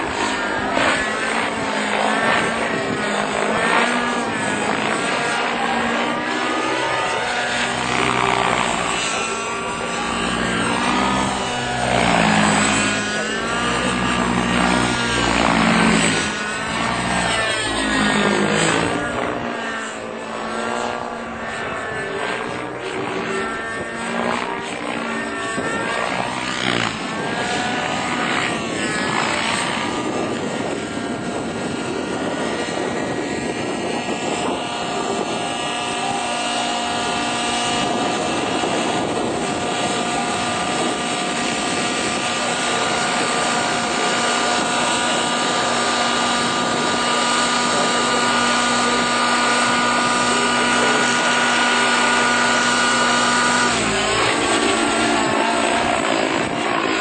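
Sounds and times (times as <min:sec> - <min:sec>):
model helicopter engine whining: 0:00.0 - 0:57.0.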